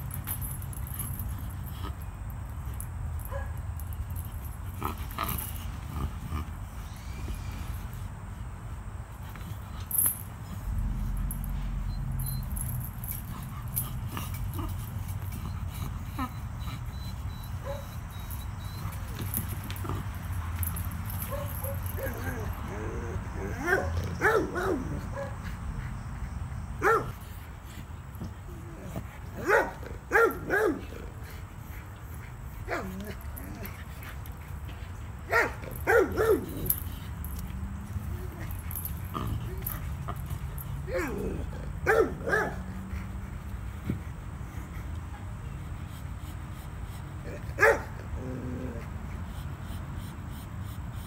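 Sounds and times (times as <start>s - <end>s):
dog whining: 10.8s - 20.7s, 21.3s - 25.2s, 37.9s - 41.7s
dog yelping: 15.5s - 19.4s, 21.3s - 25.4s, 35.3s - 36.8s, 40.9s - 42.7s
dog barking: 23.6s - 25.4s, 26.8s - 27.1s, 29.4s - 30.8s, 35.3s - 36.5s, 41.8s - 42.7s, 47.6s - 47.9s.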